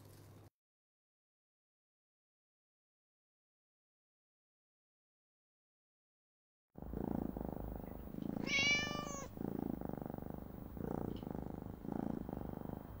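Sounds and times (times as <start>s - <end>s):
cat purring: 6.8s - 13.0s
cat meowing: 8.4s - 9.4s.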